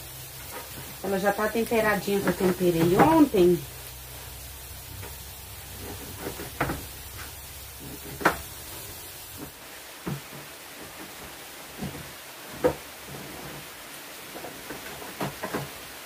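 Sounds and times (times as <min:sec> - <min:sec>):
rain hissing: 0:00.0 - 0:16.0
kitchen knocks and clunks: 0:02.2 - 0:03.4, 0:05.8 - 0:07.0, 0:07.8 - 0:08.6.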